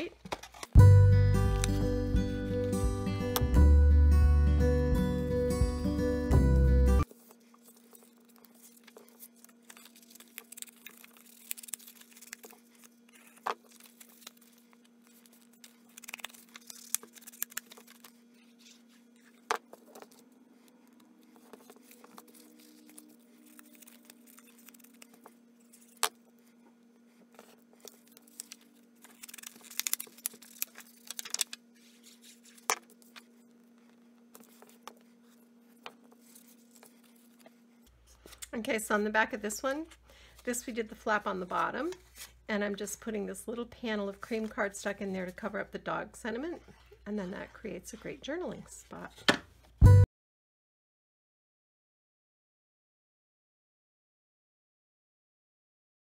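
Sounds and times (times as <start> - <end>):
paper rustling and sliding: 7.1 - 26.1, 27.1 - 38.4.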